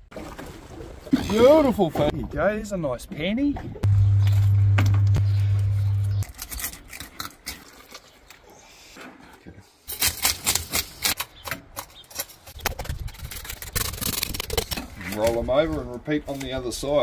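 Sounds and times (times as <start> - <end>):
loud low hum: 3.8 - 6.2.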